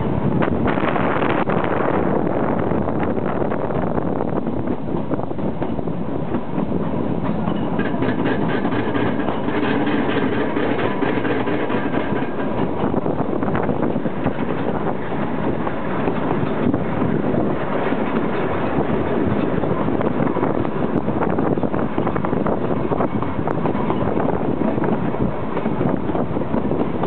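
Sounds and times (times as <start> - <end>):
train wheels rumbling on rails: 0.0 - 27.0
quick rail clicks: 4.7 - 16.8.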